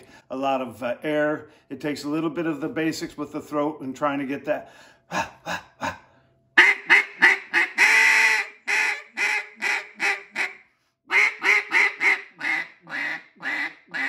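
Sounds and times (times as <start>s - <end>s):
duck call quacks: 6.6s - 14.0s.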